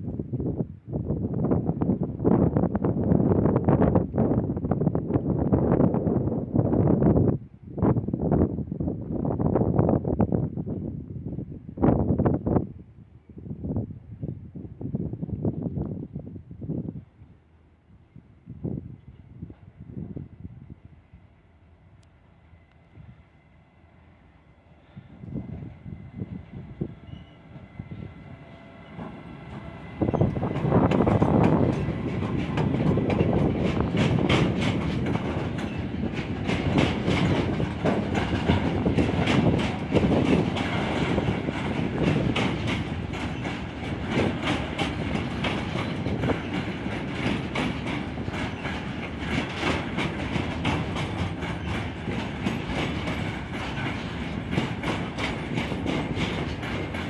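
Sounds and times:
electric locomotive passing: 0:17.6 - 0:57.0
wheels clacking over rail joints: 0:28.6 - 0:57.0.

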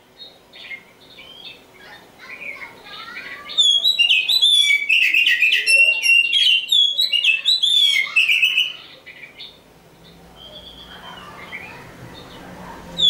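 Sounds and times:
bird singing whistled notes: 0:03.4 - 0:12.3.

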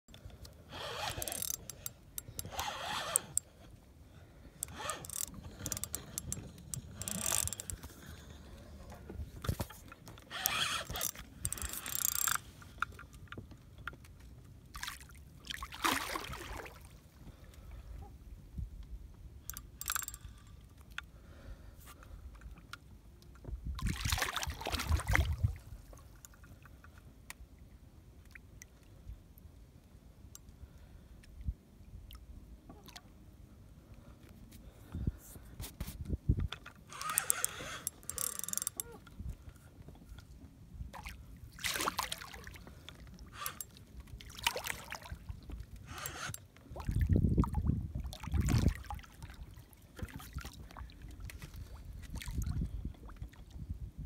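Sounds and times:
fishing reel scraping and clicking: 0:00.7 - 0:03.7, 0:04.6 - 0:13.2, 0:19.5 - 0:20.6, 0:36.5 - 0:39.1, 0:43.3 - 0:43.8, 0:45.8 - 0:46.5.

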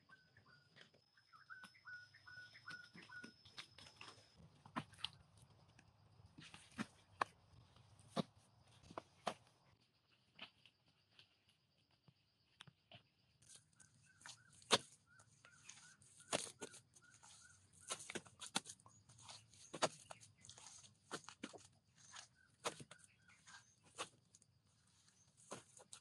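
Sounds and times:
wet mud squelching and slapping: 0:15.6 - 0:24.2.

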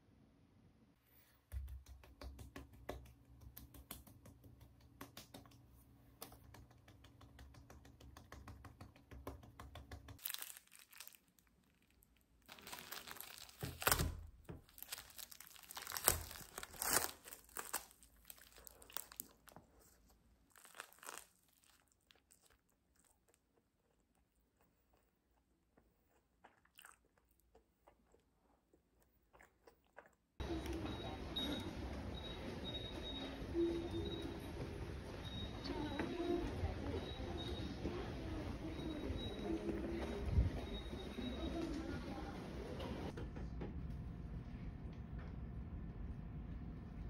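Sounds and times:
crinkling and tearing: 0:10.2 - 0:25.0.

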